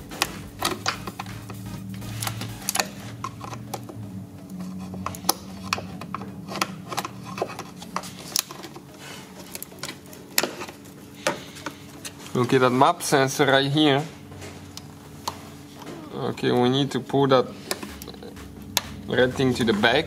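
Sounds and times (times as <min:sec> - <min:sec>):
plastic connectors clicking and rattling: 0:05.0 - 0:08.8.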